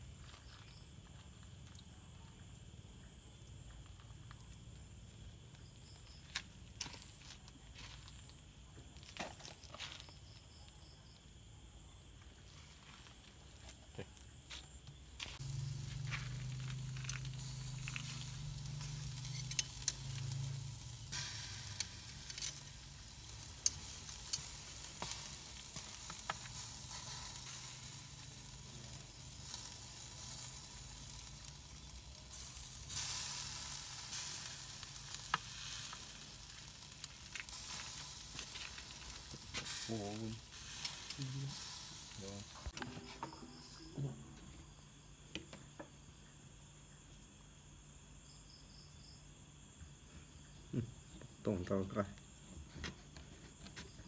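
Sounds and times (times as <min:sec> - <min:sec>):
steaks sizzling on charcoal grill: 0:15.2 - 0:43.6.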